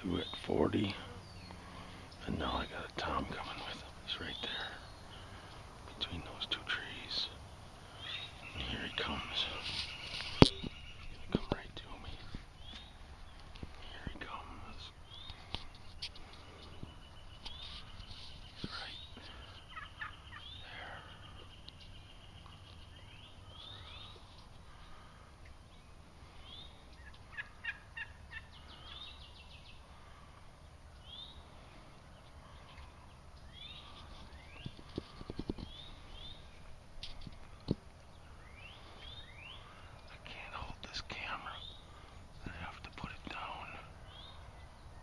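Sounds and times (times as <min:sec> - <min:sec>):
songbirds chirping: 0:00.0 - 0:45.0
turkey gobbling: 0:19.7 - 0:20.4, 0:27.0 - 0:28.6.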